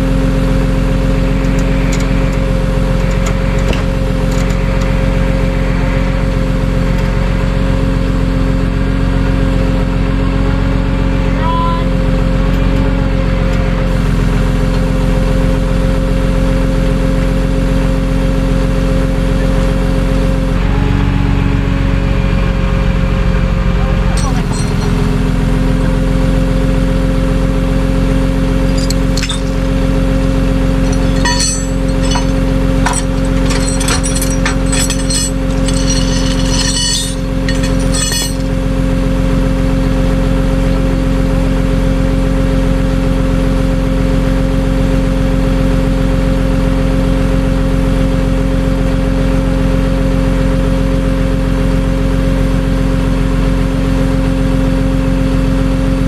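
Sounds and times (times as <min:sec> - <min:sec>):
metallic clinks and rattles: 0:24.2 - 0:25.1, 0:28.7 - 0:30.1, 0:30.7 - 0:38.6.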